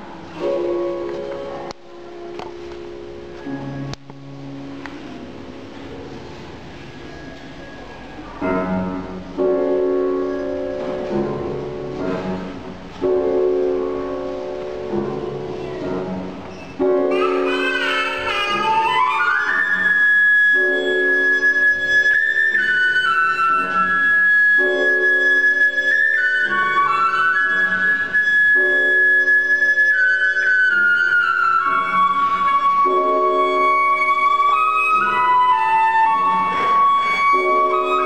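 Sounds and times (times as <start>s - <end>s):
grand piano chords: 0.0s - 38.0s
flute playing: 16.6s - 38.0s.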